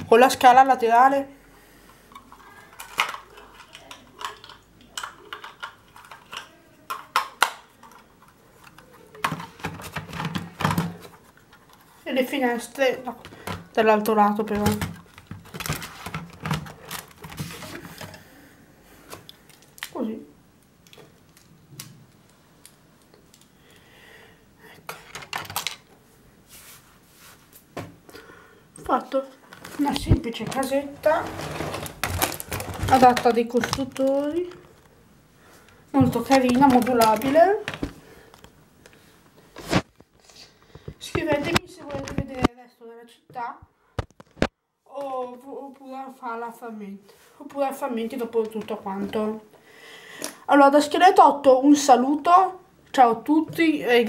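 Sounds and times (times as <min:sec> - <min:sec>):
plastic bricks clicking together: 0:02.2 - 0:10.3.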